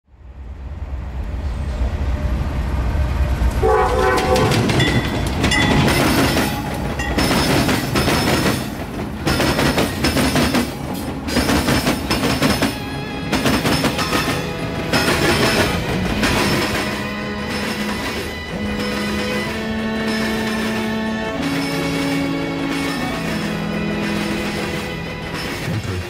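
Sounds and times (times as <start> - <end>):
wheels clattering over rail crossing: 3.1 - 26.0
train horn blast: 3.4 - 4.9, 14.0 - 25.4.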